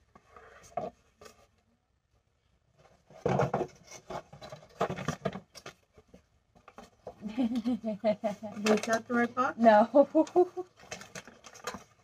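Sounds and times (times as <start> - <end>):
cardboard rustling and scraping: 0.0 - 1.6, 2.7 - 7.2.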